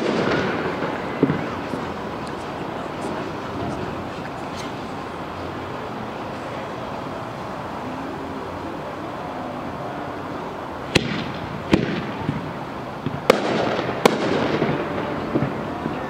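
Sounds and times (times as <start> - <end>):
firework shells bursting: 0.0 - 3.0, 10.9 - 16.0
firework crackling: 0.0 - 16.0.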